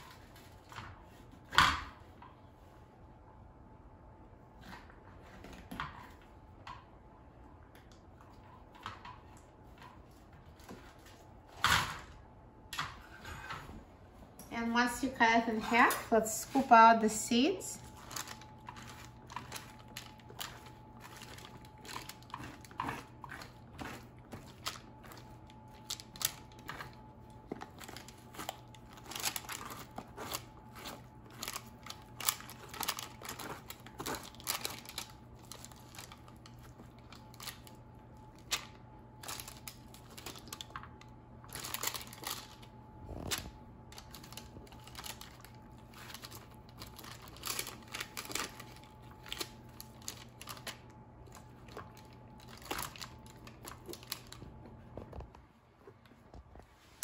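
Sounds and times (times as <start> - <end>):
parchment paper crinkling: 16.2 - 55.4
spoon scraping squash: 17.9 - 25.2.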